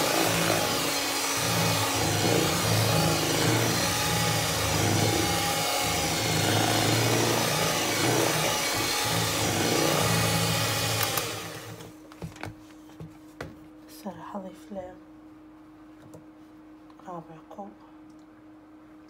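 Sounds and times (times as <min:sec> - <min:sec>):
electric mixer running: 0:00.0 - 0:11.9.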